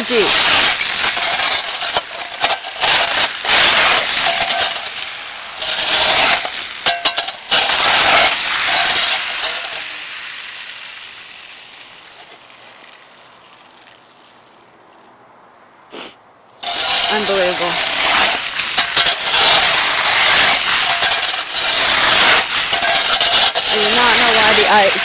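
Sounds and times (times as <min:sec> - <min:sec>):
shovel scraping ice off concrete: 0:00.0 - 0:10.1, 0:16.0 - 0:25.0
ice shards clinking: 0:00.0 - 0:10.8, 0:16.6 - 0:25.0.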